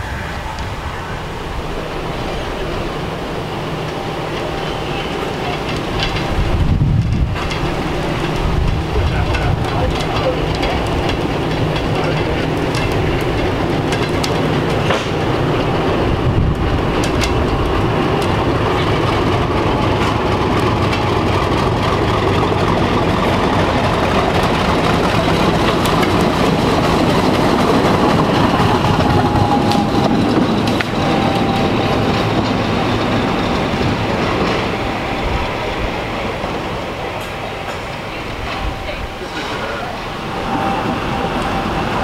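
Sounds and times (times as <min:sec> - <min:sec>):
faint squeal: 0:00.0 - 0:01.8
diesel locomotive engine: 0:00.0 - 0:42.0
wheels clattering over rail joints: 0:00.0 - 0:42.0.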